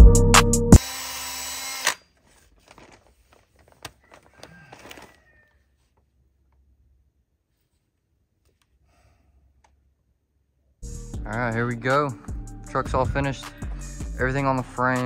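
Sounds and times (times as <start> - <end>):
drill handling clicks and rustling: 0.8 - 5.2.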